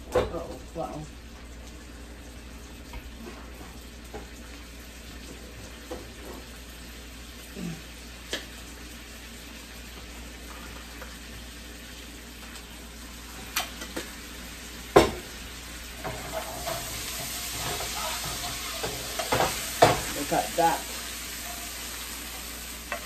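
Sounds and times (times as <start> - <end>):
food sizzling in a skillet: 0.0 - 23.0
spoon scraping and tapping pan: 16.0 - 20.2.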